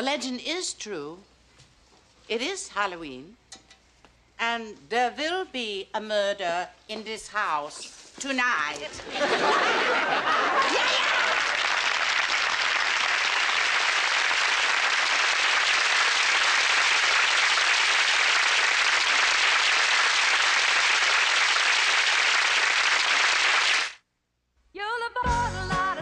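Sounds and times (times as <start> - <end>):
studio audience applauding: 10.2 - 24.0.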